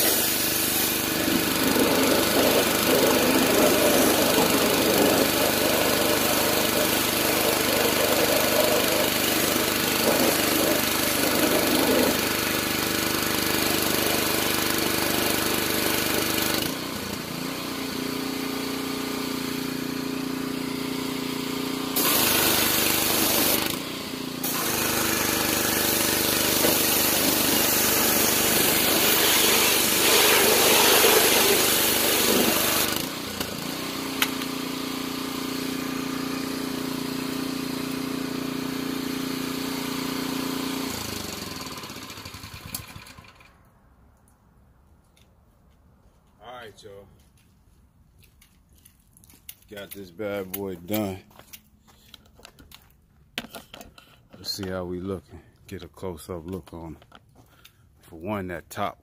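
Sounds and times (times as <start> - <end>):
pressure washer spraying water: 0.0 - 43.1
small engine drone: 0.0 - 43.7.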